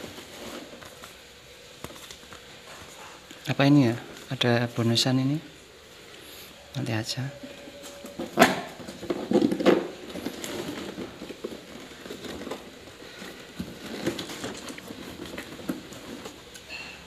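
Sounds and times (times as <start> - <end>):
cardboard packaging rustling: 0.0 - 3.0, 7.5 - 16.6.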